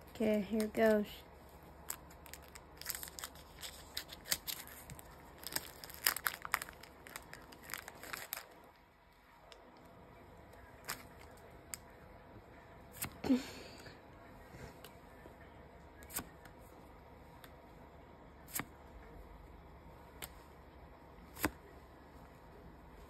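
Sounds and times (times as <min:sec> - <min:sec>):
foil crackling and rustling: 0:01.8 - 0:08.6
foil pack cut with scissors: 0:02.2 - 0:08.4.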